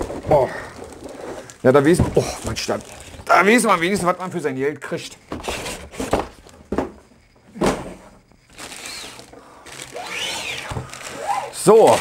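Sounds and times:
plastic bag rustling: 0:00.0 - 0:04.2, 0:08.5 - 0:12.0.

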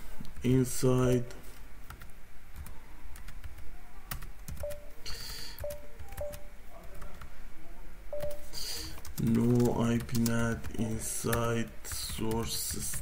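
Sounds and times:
faint steady tones: 0:03.9 - 0:09.0.

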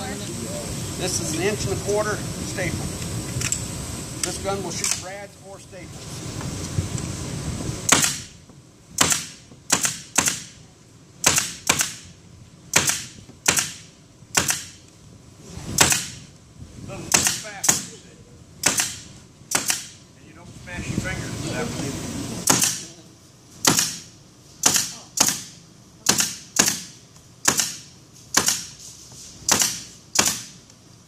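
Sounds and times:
staple gun firing into wood: 0:07.9 - 0:08.3, 0:09.0 - 0:10.5, 0:12.7 - 0:14.8, 0:18.6 - 0:20.0, 0:22.5 - 0:22.8, 0:23.6 - 0:24.0, 0:24.6 - 0:28.7.

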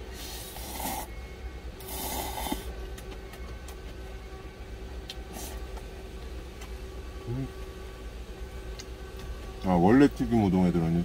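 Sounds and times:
steady low hum: 0:00.0 - 0:11.0
person slurping noodles: 0:00.2 - 0:01.1, 0:01.8 - 0:02.7.

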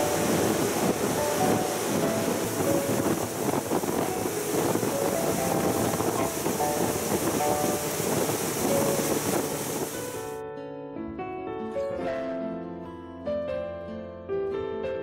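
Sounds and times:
speedboat motor and water rush: 0:00.0 - 0:10.3.

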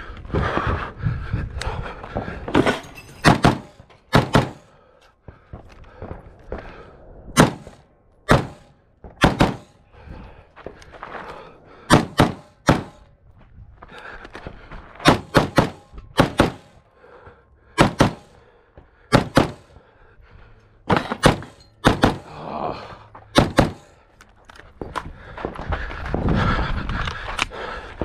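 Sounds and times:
pistol shots: 0:03.2 - 0:04.7, 0:07.4 - 0:09.8, 0:11.9 - 0:13.0, 0:15.0 - 0:16.8, 0:17.8 - 0:18.3, 0:19.1 - 0:19.7, 0:20.9 - 0:22.3, 0:23.4 - 0:23.9.

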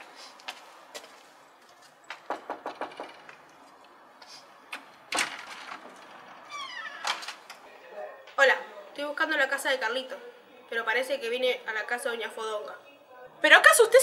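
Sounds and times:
door banging: 0:02.1 - 0:03.4, 0:04.7 - 0:07.5
knocks on door: 0:02.2 - 0:03.3
door squeaking: 0:05.2 - 0:07.5.

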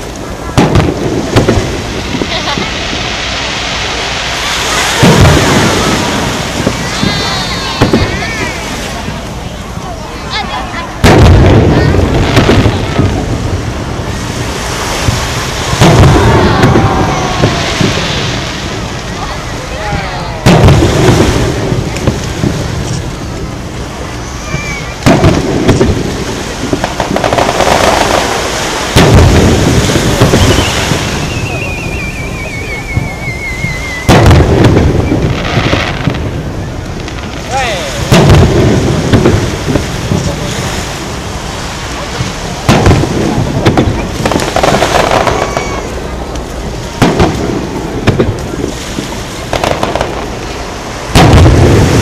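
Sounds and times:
rumble of firework booms: 0:00.0 - 0:52.0
sharp loud firework bang: 0:00.5 - 0:02.7, 0:04.7 - 0:08.5, 0:11.0 - 0:13.3, 0:14.7 - 0:18.8, 0:19.9 - 0:22.6, 0:24.5 - 0:31.7, 0:32.9 - 0:36.3, 0:37.2 - 0:40.7, 0:42.6 - 0:45.9, 0:51.1 - 0:52.0
falling firework whistle: 0:29.9 - 0:36.2, 0:44.4 - 0:46.0.

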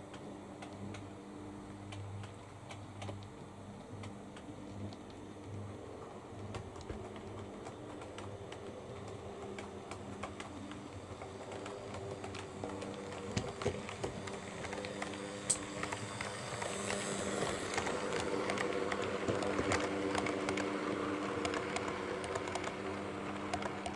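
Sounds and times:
model train motor humming: 0:09.3 - 0:23.9.

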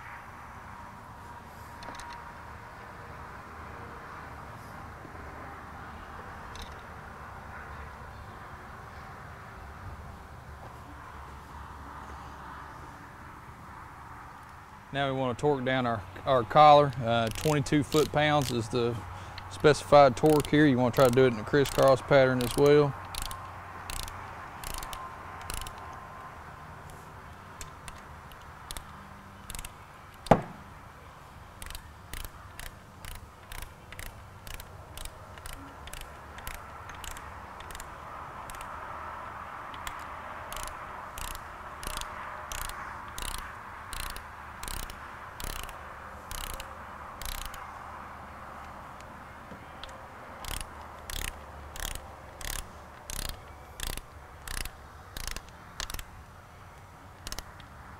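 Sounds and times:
ratchet wrench clicking: 0:01.8 - 0:02.2, 0:06.5 - 0:06.8, 0:16.8 - 0:18.7, 0:19.4 - 0:26.0, 0:27.6 - 0:30.4, 0:31.6 - 0:38.8, 0:39.7 - 0:47.7, 0:49.8 - 0:56.1, 0:57.2 - 0:57.7
sharp metallic click: 0:06.5 - 0:06.9, 0:16.9 - 0:18.7, 0:19.5 - 0:26.0, 0:27.6 - 0:30.6, 0:31.6 - 0:38.8, 0:39.7 - 0:47.6, 0:49.8 - 0:56.1, 0:57.2 - 0:57.7.

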